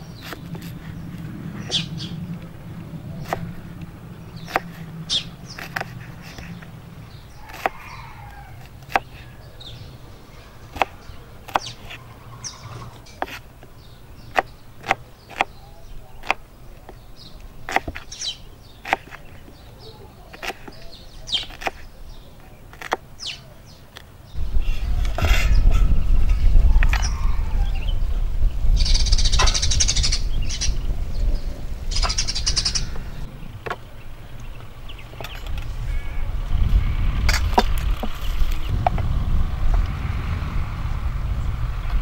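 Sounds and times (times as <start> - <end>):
birds chirping: 0.0 - 42.0
knife chopping on wooden board: 3.2 - 3.5, 4.4 - 4.9, 7.4 - 7.8, 14.3 - 15.6, 16.2 - 17.0, 17.7 - 18.1, 18.8 - 19.6, 20.3 - 20.8, 21.4 - 21.8.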